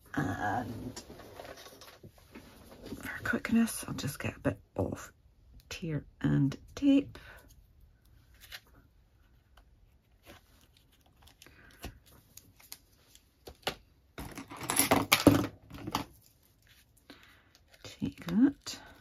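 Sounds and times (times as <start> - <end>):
paper rustling: 8.3 - 13.6.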